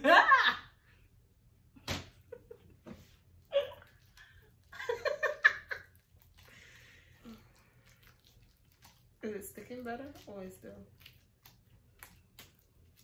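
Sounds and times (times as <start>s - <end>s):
woman laughing: 0.0s - 0.8s, 3.5s - 4.0s, 4.7s - 5.9s.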